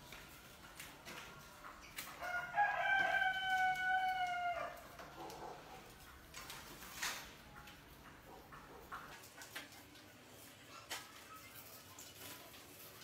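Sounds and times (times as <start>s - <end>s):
rats scratching on wire cage: 0.0s - 13.0s
rooster crowing: 2.2s - 4.8s.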